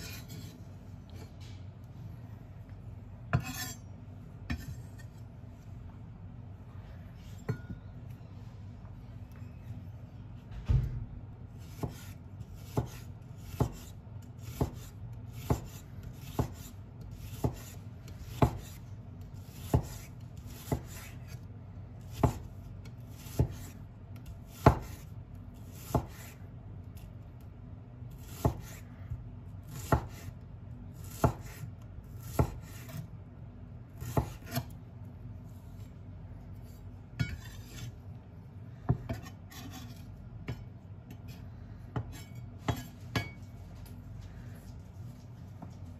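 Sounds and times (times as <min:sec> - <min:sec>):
knife slicing onion: 0:03.3 - 0:05.2, 0:11.5 - 0:33.2, 0:33.9 - 0:34.8, 0:35.4 - 0:38.0, 0:38.9 - 0:43.4.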